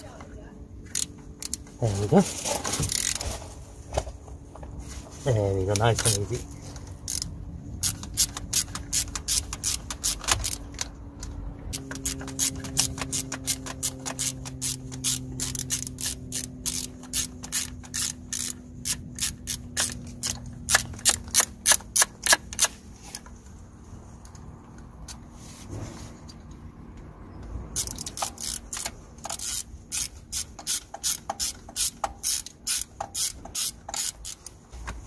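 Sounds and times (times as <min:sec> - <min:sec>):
hand ratchet clicking: 0:00.8 - 0:01.8, 0:02.8 - 0:03.2, 0:05.7 - 0:06.4, 0:07.0 - 0:11.0, 0:11.7 - 0:23.2, 0:27.7 - 0:34.6.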